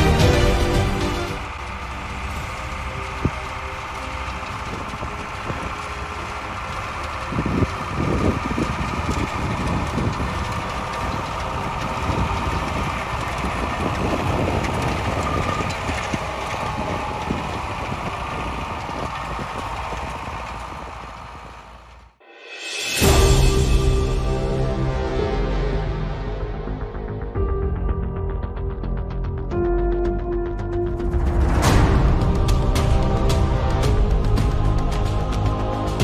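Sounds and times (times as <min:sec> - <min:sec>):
tractor diesel engine running: 0:00.0 - 0:22.2, 0:23.0 - 0:27.5, 0:30.8 - 0:36.0.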